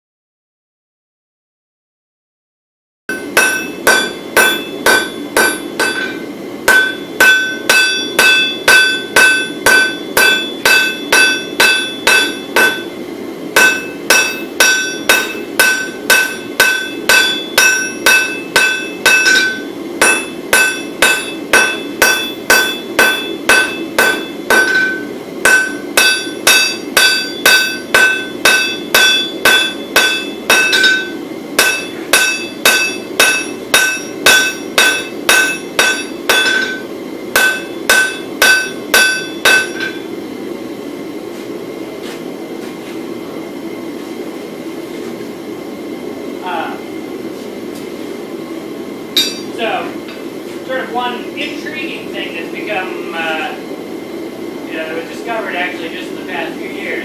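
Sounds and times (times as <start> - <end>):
hammer ringing on anvil: 3.1 - 13.0, 13.6 - 40.1, 49.2 - 49.6.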